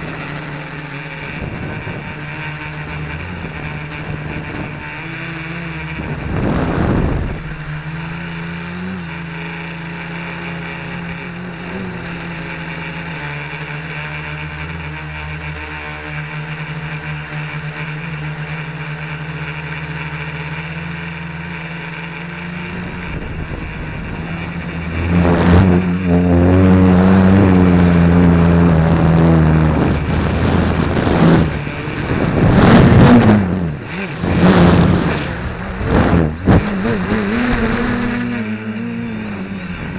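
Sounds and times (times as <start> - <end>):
drone motors humming: 0.0 - 39.9
drone hitting tree branches: 5.5 - 9.5, 21.6 - 38.4.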